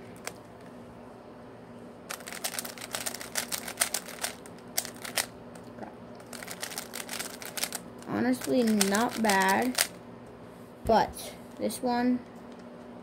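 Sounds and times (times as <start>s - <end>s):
puzzle cube clicking as twisted: 2.1s - 5.3s, 6.3s - 7.8s, 8.4s - 9.9s.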